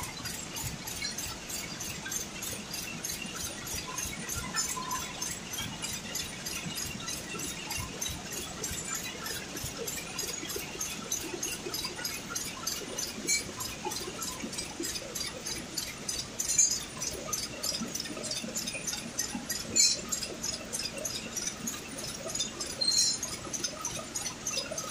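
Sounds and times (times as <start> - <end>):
low machine hum: 0.0 - 24.9
knitting machine clattering: 18.6 - 24.9
metallic clinks: 19.7 - 20.2, 22.3 - 23.3.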